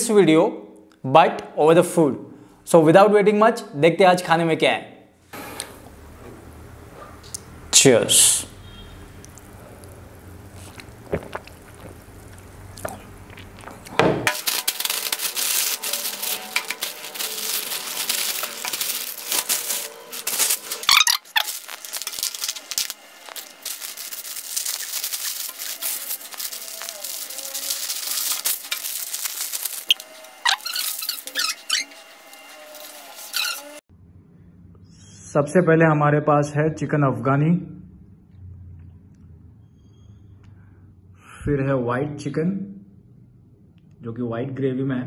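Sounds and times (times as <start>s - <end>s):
foil and plastic bags crinkling: 13.4s - 33.8s.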